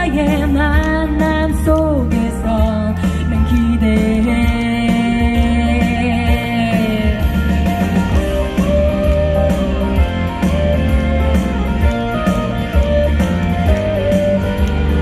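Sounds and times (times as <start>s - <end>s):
live pop band instrumental: 0.0s - 15.0s
guitar melody: 7.5s - 15.0s.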